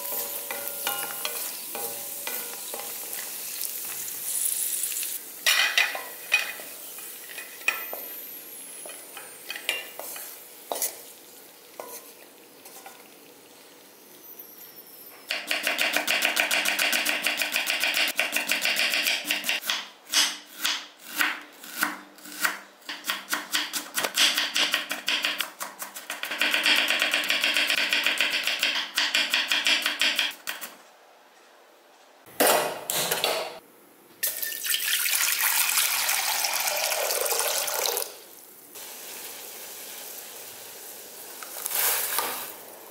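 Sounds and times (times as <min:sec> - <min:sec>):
spatula scraping in pan: 0:00.0 - 0:05.0, 0:08.8 - 0:11.1, 0:11.8 - 0:13.0
faint sizzle: 0:00.0 - 0:15.3, 0:37.6 - 0:42.9.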